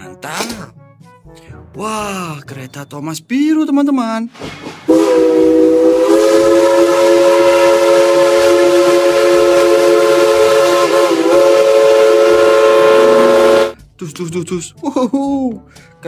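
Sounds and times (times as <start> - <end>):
steam locomotive chime whistle: 4.9 - 13.8.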